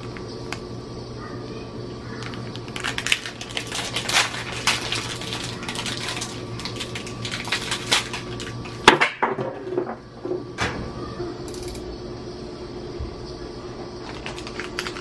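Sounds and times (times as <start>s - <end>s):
packet crinkling and rattling: 2.1s - 8.8s, 14.0s - 15.0s.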